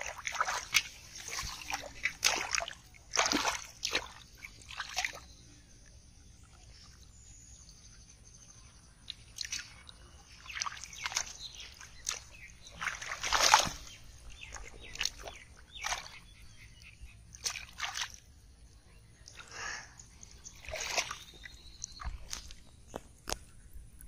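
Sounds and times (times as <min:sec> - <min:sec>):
hands splashing in muddy water: 0:00.0 - 0:05.3, 0:09.1 - 0:16.3, 0:17.3 - 0:18.3, 0:19.3 - 0:23.4.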